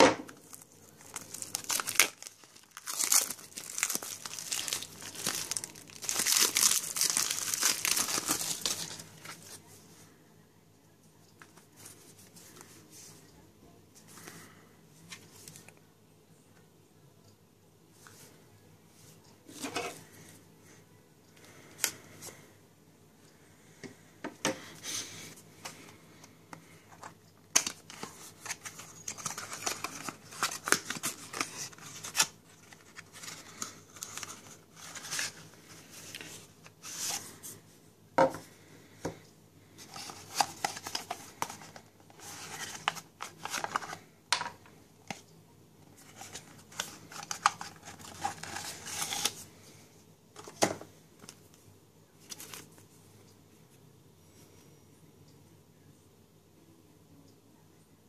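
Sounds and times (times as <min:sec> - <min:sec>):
paper rustling: 0:39.8 - 0:44.0.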